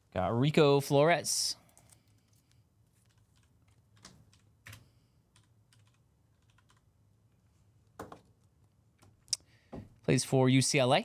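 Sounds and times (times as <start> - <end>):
keyboard typing clicks: 5.4 - 6.8.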